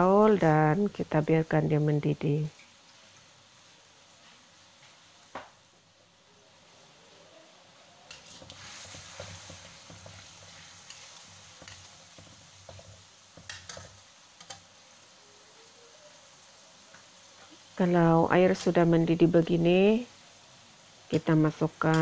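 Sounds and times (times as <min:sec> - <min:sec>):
sauce bubbling in a wok: 0:02.4 - 0:21.4
metal spatula scraping a pan: 0:08.1 - 0:14.6.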